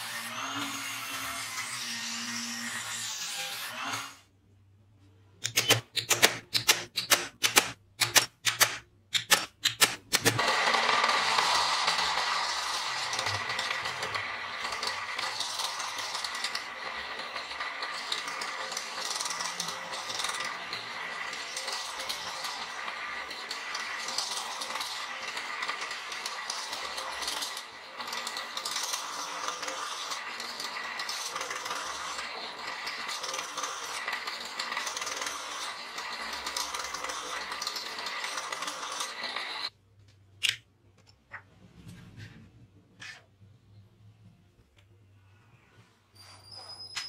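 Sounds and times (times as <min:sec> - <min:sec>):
metal pieces clicking on bench: 0:05.4 - 0:10.4, 0:40.4 - 0:41.1.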